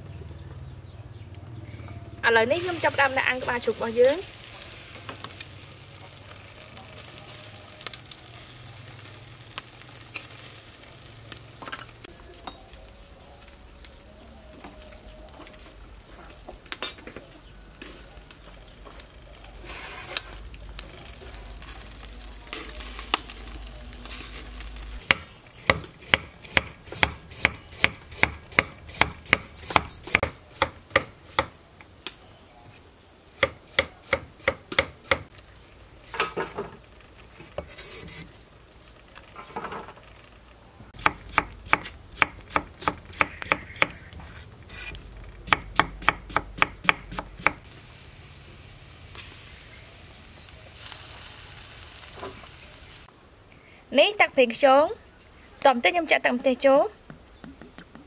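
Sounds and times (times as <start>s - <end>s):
soft scraping and rustling: 11.6s - 25.0s, 35.3s - 40.6s, 44.1s - 45.3s.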